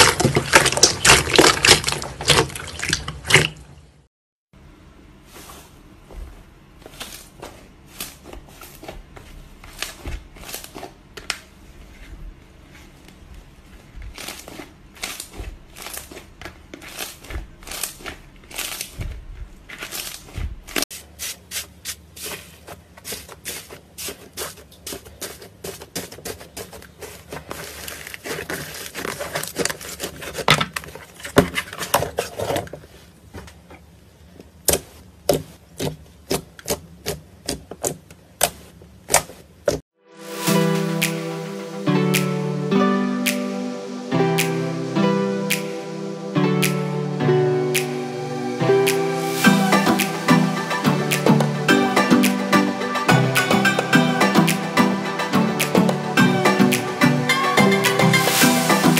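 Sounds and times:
dried slime crust crackling: 0.0s - 3.5s, 6.8s - 33.3s
hands squelching sticky slime: 0.0s - 3.7s, 14.0s - 30.5s.

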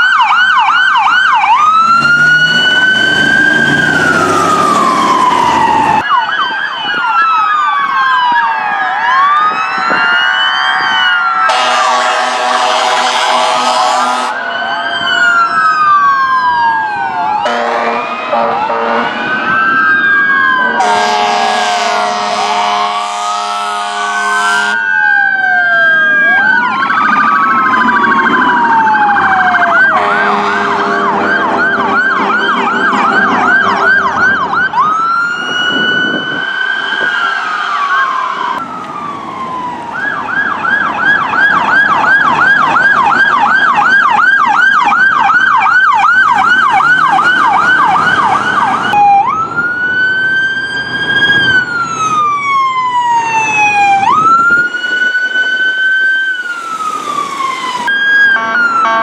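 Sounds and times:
emergency vehicle sirens wailing: 0.0s - 59.0s
fast yelping siren: 0.0s - 59.0s.

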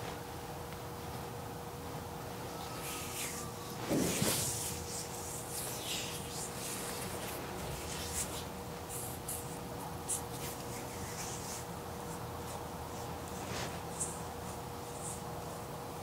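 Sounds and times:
faint steady hum: 0.0s - 16.0s
hands rubbing skin: 2.5s - 15.2s.

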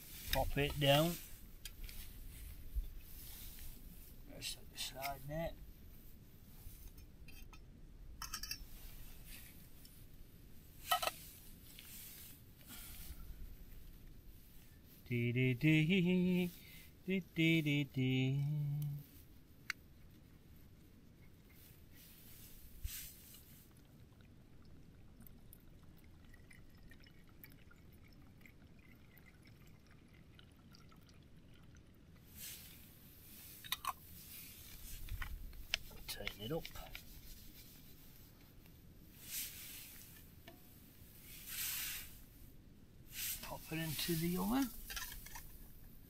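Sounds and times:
metal pot parts clinking: 8.2s - 8.8s, 10.9s - 11.2s, 44.6s - 45.6s
water trickling into a pot: 23.3s - 34.9s.

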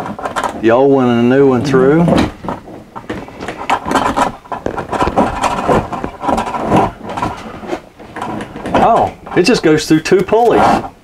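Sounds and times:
steel cable scraping through pulleys: 0.0s - 11.0s.

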